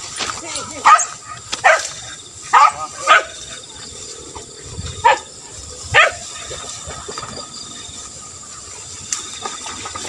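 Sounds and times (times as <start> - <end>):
dog barking: 0.8 - 3.5, 5.0 - 5.3, 5.9 - 6.3.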